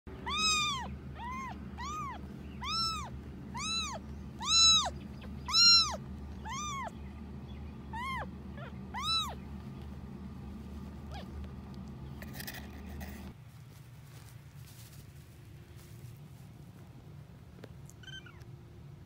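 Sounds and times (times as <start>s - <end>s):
kitten mewing: 0.2s - 7.0s, 7.9s - 9.4s, 18.0s - 18.5s.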